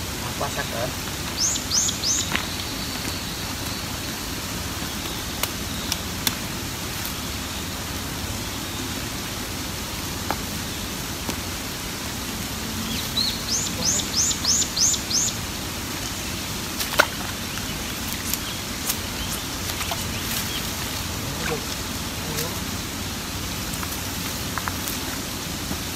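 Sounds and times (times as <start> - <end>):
bird chirping: 0.0 - 6.3, 12.4 - 24.2
light rain hissing: 0.0 - 25.9.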